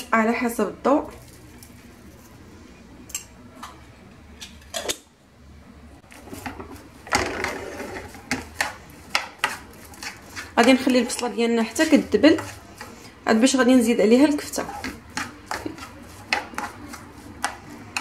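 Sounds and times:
spatula scraping frying pan: 6.1 - 18.0.

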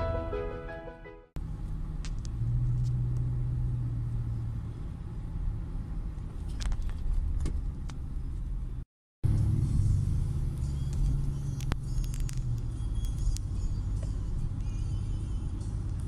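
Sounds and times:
car engine and road rumble: 1.3 - 16.0.

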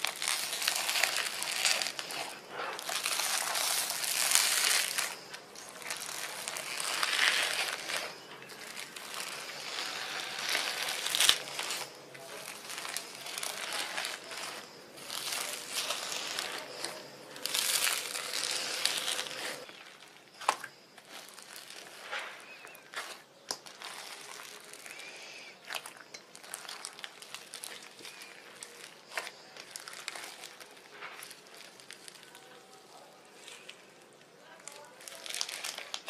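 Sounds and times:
slime popping: 0.0 - 25.0
slime crinkling and crackling: 0.0 - 36.0.

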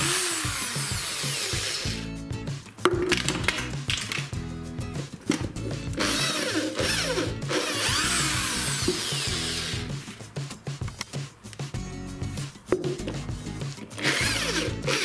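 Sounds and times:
hammer drill boring into wood: 0.0 - 2.0, 6.0 - 9.9, 14.0 - 15.0
background music with steady beat: 0.0 - 15.0.

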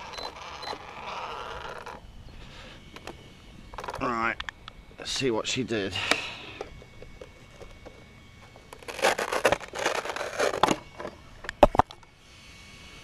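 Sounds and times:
plastic shell rustling and crinkling: 6.6 - 12.0.

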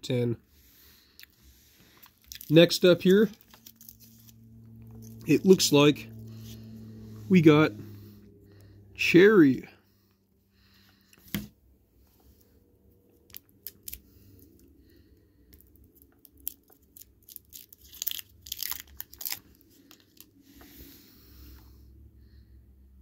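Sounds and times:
paper wrapper crinkling: 1.9 - 5.6, 13.2 - 14.6, 15.6 - 20.4.

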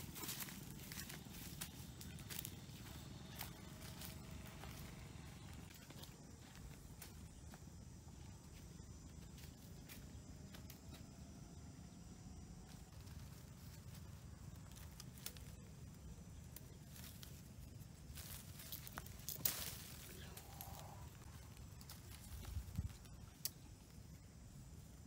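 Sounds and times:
branches snapping and crackling: 0.0 - 6.0, 12.9 - 15.8, 16.4 - 23.7
footsteps in dry leaves: 0.0 - 7.5, 12.8 - 23.2
faint low rumble: 0.0 - 25.0.

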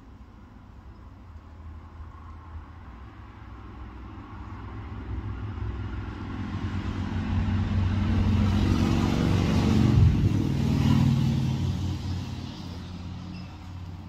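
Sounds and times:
motorcycle approaching: 5.3 - 14.0.

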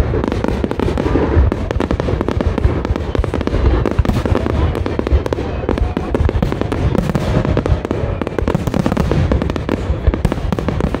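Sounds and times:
fireworks bursting and crackling: 0.0 - 11.0.

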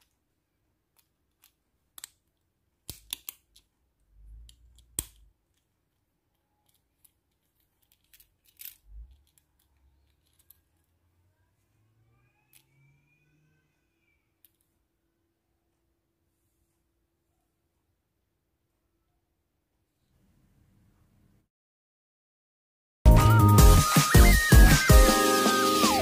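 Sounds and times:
lanyard clip clicking and rattling: 6.6 - 10.6.

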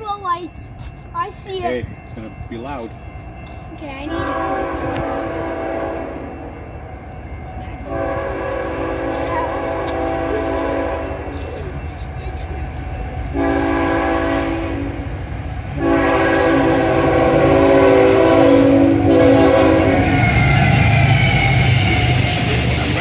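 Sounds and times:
train rumbling: 0.0 - 23.0
train wheels rushing by: 0.0 - 23.0
locomotive air horn: 4.2 - 6.3, 7.9 - 11.4, 13.3 - 15.0, 15.8 - 23.0.

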